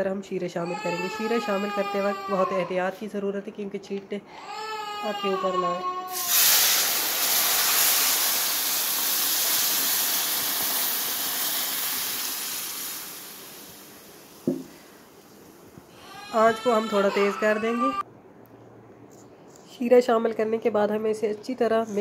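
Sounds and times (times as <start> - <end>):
syrup sizzling in a hot pan: 6.1 - 14.4
short knock: 14.5 - 14.7.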